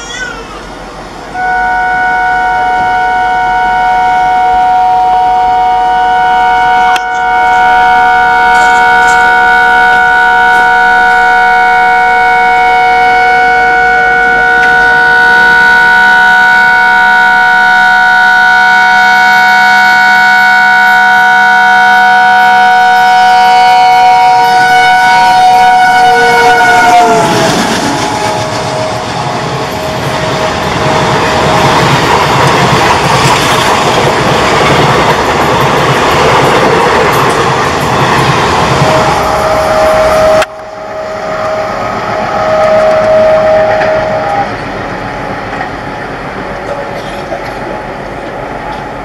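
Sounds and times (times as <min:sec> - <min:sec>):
locomotive air horn blast: 0:01.3 - 0:31.8, 0:38.6 - 0:44.6.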